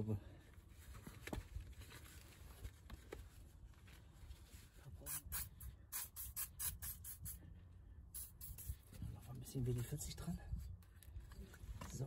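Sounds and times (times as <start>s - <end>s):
aerosol can spraying short squirts: 5.1s - 7.4s, 8.2s - 8.8s.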